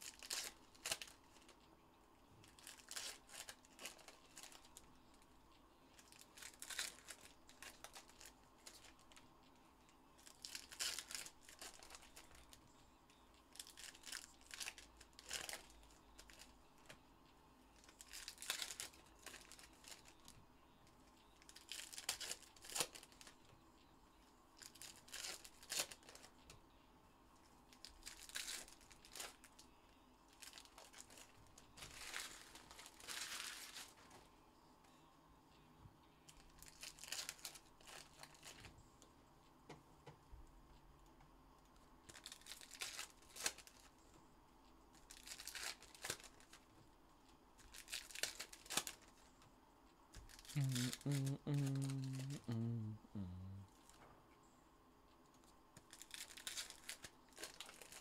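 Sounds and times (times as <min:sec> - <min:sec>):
wrappers tearing and crinkling: 0:00.0 - 0:01.6, 0:02.4 - 0:04.9, 0:05.9 - 0:09.2, 0:10.2 - 0:12.6, 0:13.5 - 0:16.5, 0:17.8 - 0:20.3, 0:21.4 - 0:23.4, 0:24.6 - 0:26.3, 0:27.7 - 0:29.6, 0:30.3 - 0:34.2, 0:36.5 - 0:38.7, 0:42.1 - 0:43.9, 0:45.0 - 0:46.7, 0:47.6 - 0:49.2, 0:50.2 - 0:52.6, 0:55.8 - 0:58.0.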